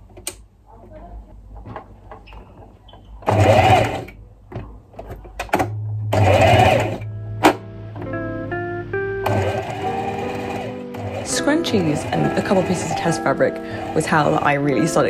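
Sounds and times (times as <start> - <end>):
sewing machine stitching: 3.2 - 4.2, 5.6 - 7.0, 9.2 - 14.5.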